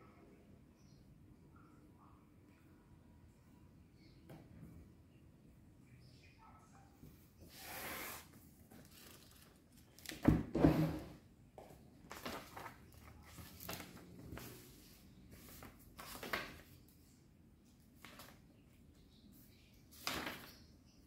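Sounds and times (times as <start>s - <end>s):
paper rustling and tapping: 11.6s - 14.5s, 15.4s - 16.8s, 18.0s - 18.4s, 19.9s - 20.6s.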